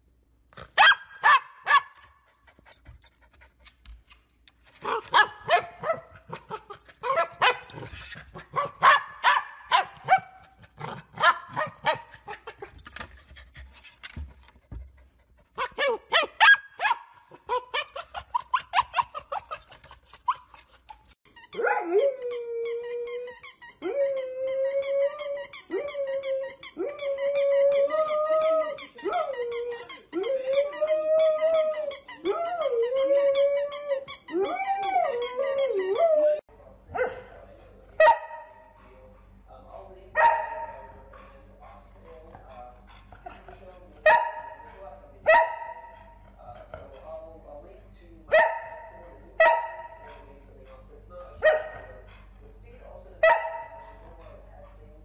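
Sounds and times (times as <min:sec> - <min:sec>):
dog barking: 0:00.8 - 0:02.0, 0:04.8 - 0:07.8, 0:08.5 - 0:10.5, 0:11.2 - 0:12.1, 0:15.6 - 0:19.2, 0:21.6 - 0:21.9, 0:36.9 - 0:37.4, 0:38.0 - 0:38.6, 0:40.2 - 0:40.9, 0:44.0 - 0:46.1, 0:48.3 - 0:50.2, 0:51.4 - 0:51.9, 0:53.2 - 0:54.0.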